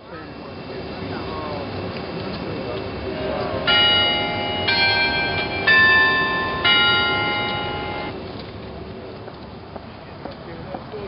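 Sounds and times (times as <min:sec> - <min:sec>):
bell chime notes: 0:03.2 - 0:08.2.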